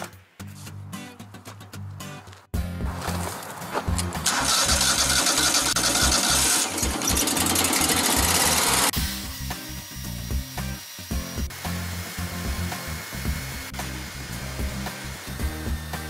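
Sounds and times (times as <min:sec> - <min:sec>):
background music with bass line: 0:00.0 - 0:16.0
sawmill engine running: 0:04.2 - 0:09.0.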